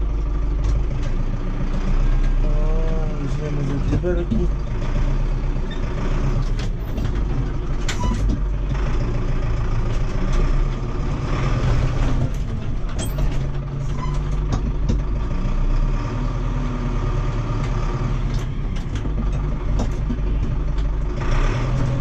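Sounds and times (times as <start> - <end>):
tractor diesel engine running: 0.0 - 22.0
sharp knocks and clanks: 3.6 - 4.7, 6.4 - 8.8, 11.6 - 15.2, 18.4 - 20.9.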